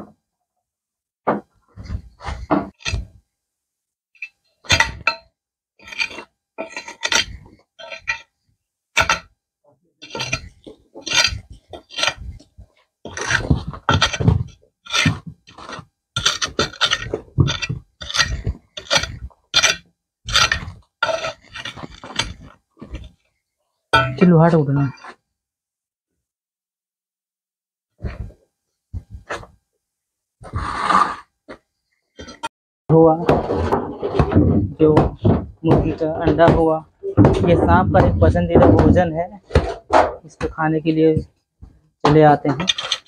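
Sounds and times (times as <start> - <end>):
metal tool digging into earth and rubble: 1.9 - 3.2, 4.2 - 8.4, 9.0 - 9.4, 10.0 - 23.2, 24.0 - 25.2, 32.2 - 32.5, 42.2 - 43.0.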